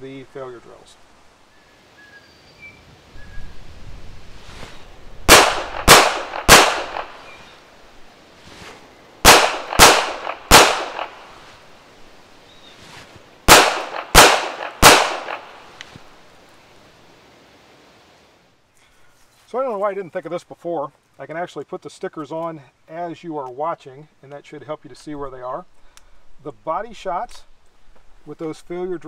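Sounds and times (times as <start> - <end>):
pistol shots: 5.3 - 7.4, 9.2 - 11.4, 13.5 - 15.7.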